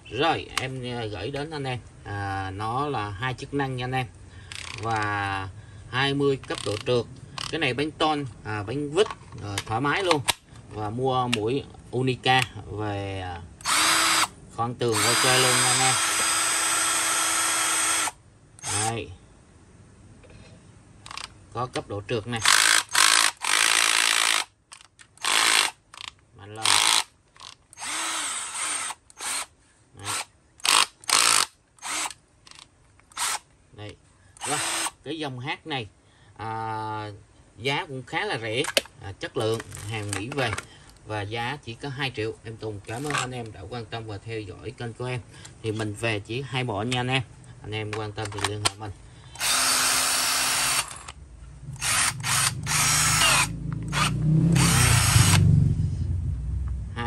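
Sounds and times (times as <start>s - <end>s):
cordless drill motor spinning: 13.6s - 18.9s, 22.4s - 24.5s, 25.2s - 25.8s, 26.6s - 32.2s, 33.1s - 33.4s, 34.4s - 35.0s, 49.4s - 51.2s, 51.8s - 55.4s.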